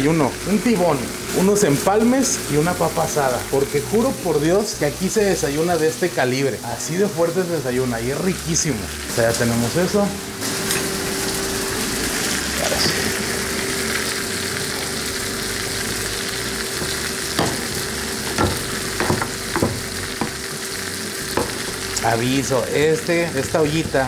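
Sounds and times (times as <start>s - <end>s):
steak sizzling in a frying pan: 0.0s - 24.0s
masher knocking on a saucepan: 16.8s - 20.6s, 21.3s - 21.9s.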